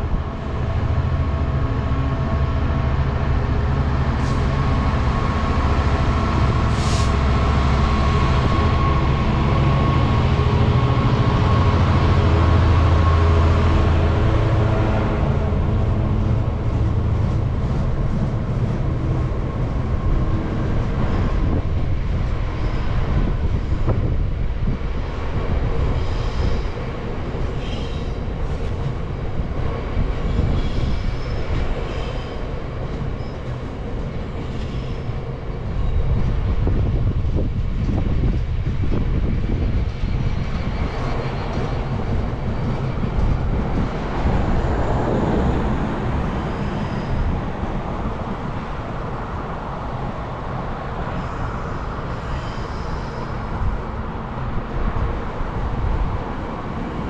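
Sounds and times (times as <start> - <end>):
locomotive engine: 0.0 - 57.0
train wagons rumbling on track: 0.0 - 57.0
high wheel squeal: 27.6 - 28.7, 30.3 - 32.5, 46.2 - 47.5, 51.0 - 53.7.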